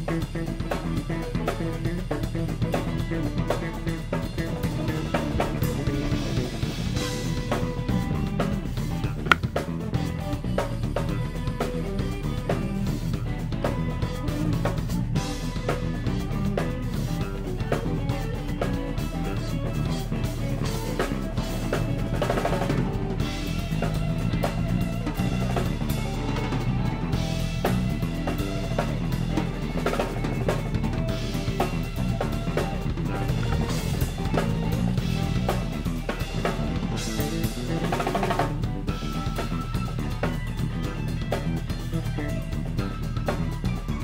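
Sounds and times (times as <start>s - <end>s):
drum kit and bass music: 0.0s - 44.0s.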